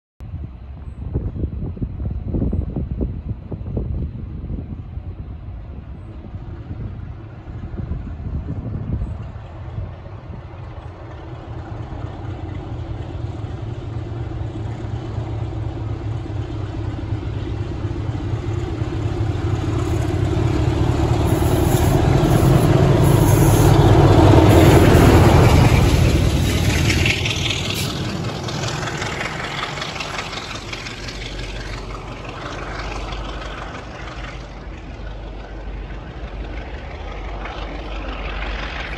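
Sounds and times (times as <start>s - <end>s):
diesel locomotive engine at full power: 0.2s - 38.9s.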